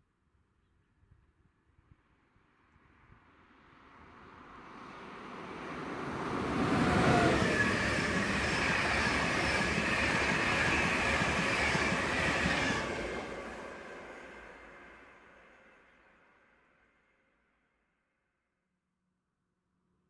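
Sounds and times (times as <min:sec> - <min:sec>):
train passing at speed: 0:02.9 - 0:17.0
wheel and rail noise: 0:04.5 - 0:14.7.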